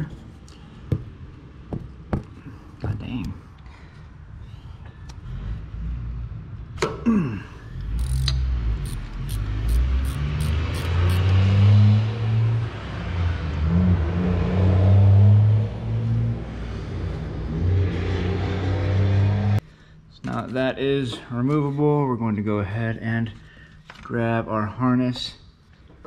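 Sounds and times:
ratchet squeak: 0:07.8 - 0:11.3
ratchet clicking: 0:07.8 - 0:11.4.

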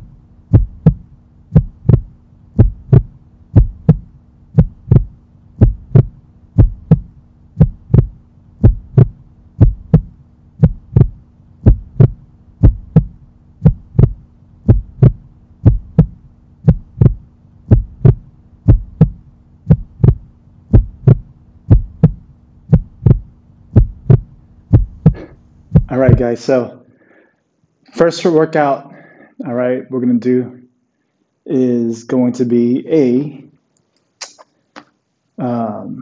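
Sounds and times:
heartbeat double thump: 0:00.0 - 0:26.3
faint steady hum: 0:00.0 - 0:36.0.

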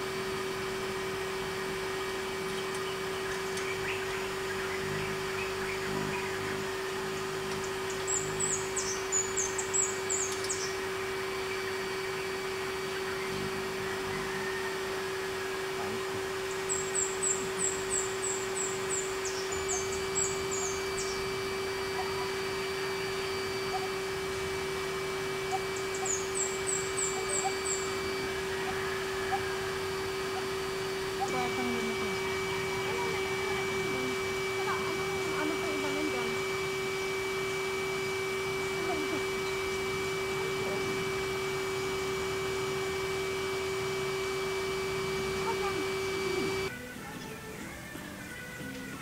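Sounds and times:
steady low hum: 0:00.0 - 0:46.7
bird chirping: 0:02.5 - 0:14.4, 0:16.5 - 0:22.8, 0:25.4 - 0:29.5.

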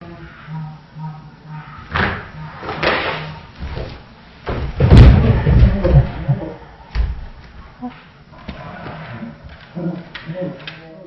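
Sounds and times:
cardboard boxes crashing down: 0:04.5 - 0:06.2.

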